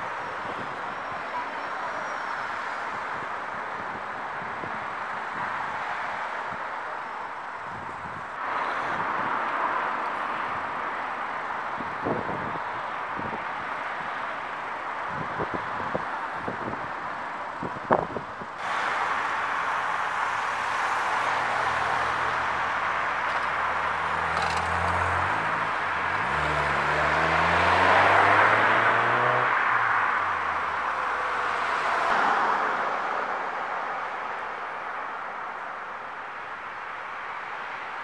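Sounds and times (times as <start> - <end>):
car tyre noise: 17.6 - 33.2
car engine accelerating: 23.4 - 29.9.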